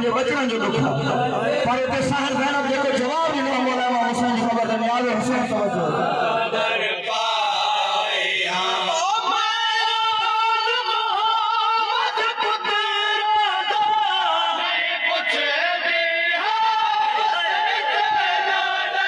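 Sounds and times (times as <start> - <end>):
man singing a lament: 5.4 - 19.0.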